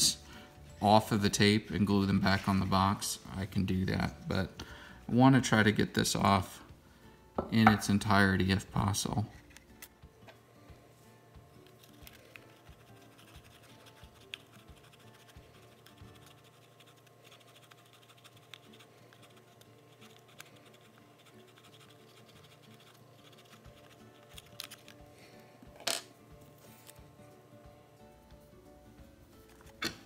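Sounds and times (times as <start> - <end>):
tweezers scratching tape: 11.7 - 25.0.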